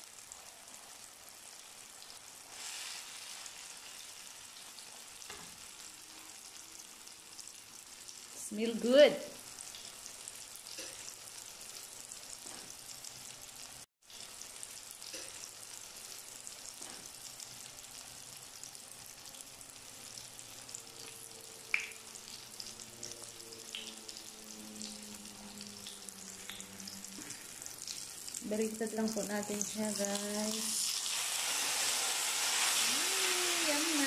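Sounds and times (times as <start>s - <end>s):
eggplant frying in oil: 0.0s - 34.0s.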